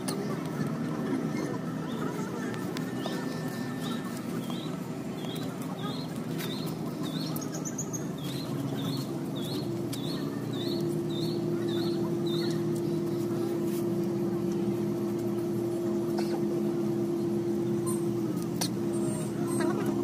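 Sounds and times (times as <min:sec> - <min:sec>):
deep engine drone: 0:00.0 - 0:20.0
low machinery hum: 0:00.0 - 0:20.0
small bird calling: 0:02.9 - 0:13.0, 0:17.8 - 0:18.2.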